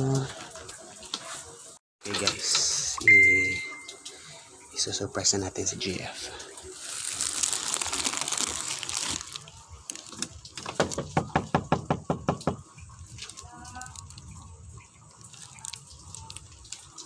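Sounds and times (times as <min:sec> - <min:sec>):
knocking on a door: 0:10.7 - 0:12.7.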